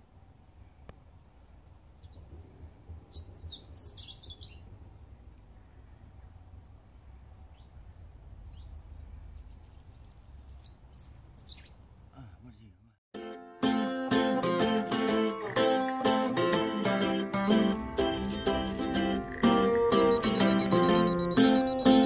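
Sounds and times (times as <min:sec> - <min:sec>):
low steady rumble: 0:00.0 - 0:10.6
small birds chirping: 0:00.3 - 0:06.3, 0:07.0 - 0:12.2, 0:18.1 - 0:22.0.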